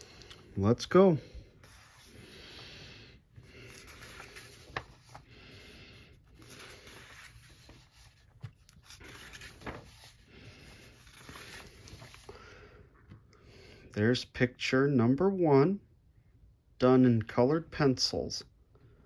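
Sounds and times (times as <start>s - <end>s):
book pages turning: 1.6s - 2.6s, 3.3s - 12.4s.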